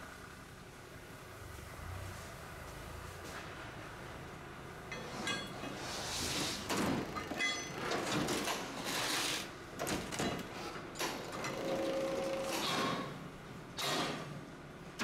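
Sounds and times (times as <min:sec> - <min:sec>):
chains scraping and clanking on metal: 0:04.9 - 0:09.5
short ringing metal clinks: 0:07.3 - 0:07.8.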